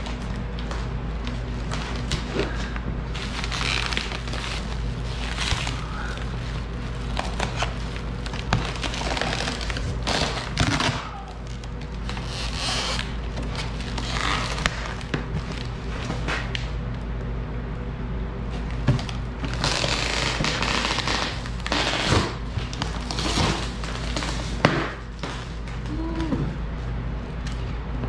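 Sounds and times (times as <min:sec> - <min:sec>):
cardboard tearing: 0:03.2 - 0:16.6, 0:19.4 - 0:25.4.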